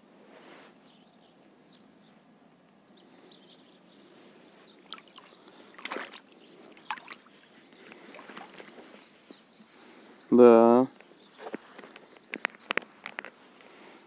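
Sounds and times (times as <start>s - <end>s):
water sloshing against boat: 4.8s - 9.0s.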